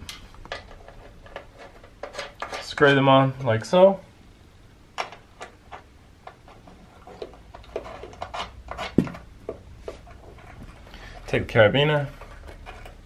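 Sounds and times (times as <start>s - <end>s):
hands handling steel cables: 0.0s - 2.9s, 5.0s - 13.0s.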